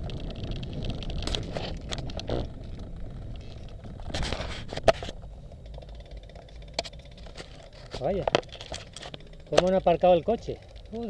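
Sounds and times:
bicycle clicks and rattles: 0:00.0 - 0:11.0
bicycle tyre road noise: 0:00.0 - 0:11.0
wind rumbling on microphone: 0:00.0 - 0:11.0.

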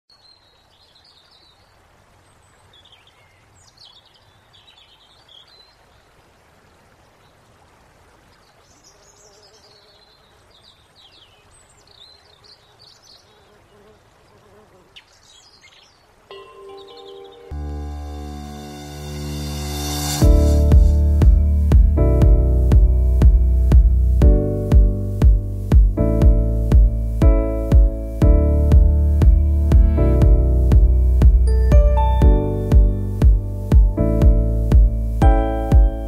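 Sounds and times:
small birds chirping: 0:00.1 - 0:06.2, 0:08.2 - 0:17.6
faint outdoor hiss: 0:00.1 - 0:36.0.

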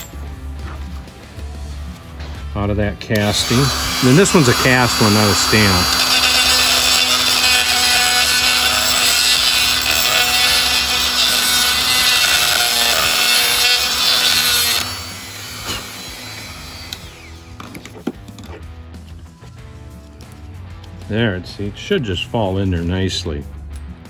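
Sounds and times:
rotary tool grinding metal: 0:03.1 - 0:18.6.

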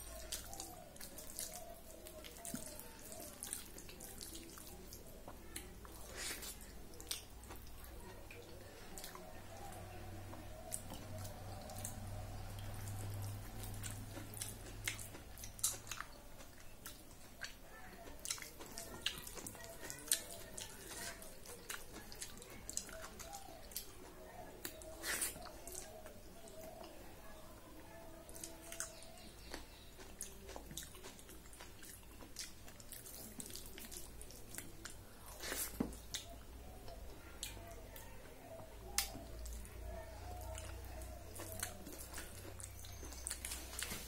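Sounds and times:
wet chewing and mouth clicks: 0:00.0 - 0:44.0.

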